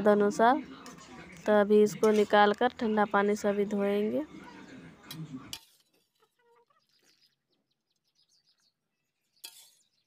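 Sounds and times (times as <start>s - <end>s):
chickens clucking: 3.8s - 7.6s.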